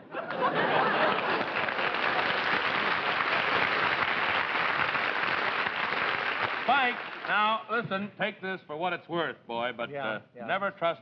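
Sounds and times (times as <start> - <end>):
audience applauding: 0.3 - 7.6.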